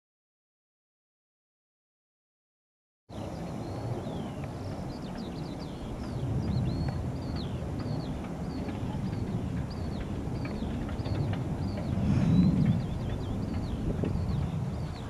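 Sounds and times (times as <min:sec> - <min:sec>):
birds singing: 0:03.1 - 0:15.0
steady low rumble: 0:03.2 - 0:15.0.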